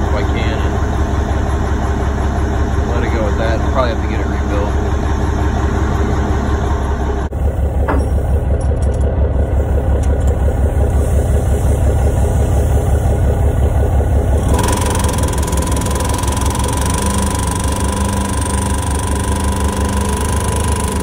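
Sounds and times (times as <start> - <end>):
diesel engine idling: 0.0 - 21.0.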